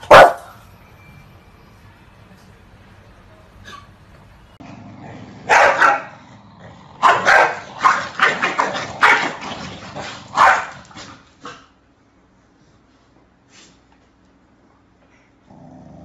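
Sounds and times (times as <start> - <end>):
dog barking sharply: 0.0 - 0.5, 5.5 - 6.1, 7.0 - 9.4, 10.0 - 11.6.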